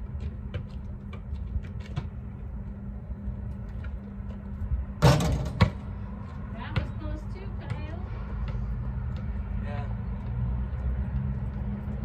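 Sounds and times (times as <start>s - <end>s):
ball bouncing on asphalt: 0.0s - 12.0s
steady low hum: 0.0s - 12.0s
basketball clanging off hoop: 5.0s - 5.8s.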